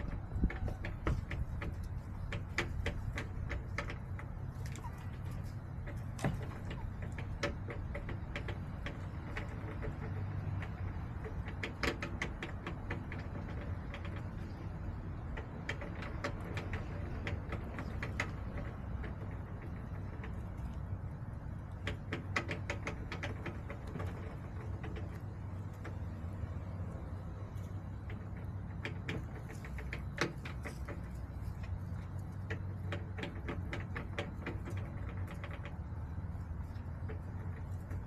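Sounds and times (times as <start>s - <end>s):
chickens pecking taps: 0.0s - 38.0s.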